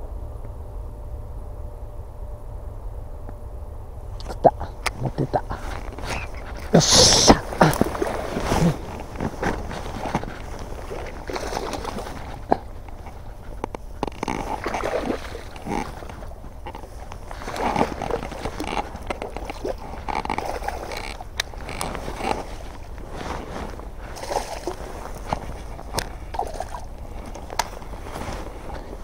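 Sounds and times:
low wind rumble: 0:00.0 - 0:29.0
grass rubbing microphone: 0:04.3 - 0:29.0
jacket fabric rustling: 0:05.5 - 0:29.0.

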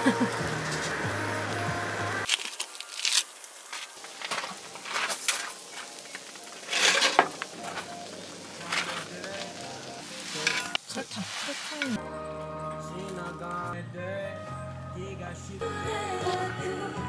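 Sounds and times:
food sizzling faintly: 0:00.0 - 0:12.0
utensil scraping a pan: 0:06.6 - 0:07.9, 0:08.6 - 0:12.0.

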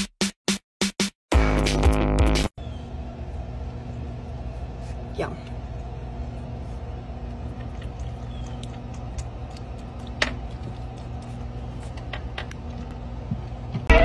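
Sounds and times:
low hum: 0:02.6 - 0:14.0
animal licking and smacking: 0:07.3 - 0:12.9.

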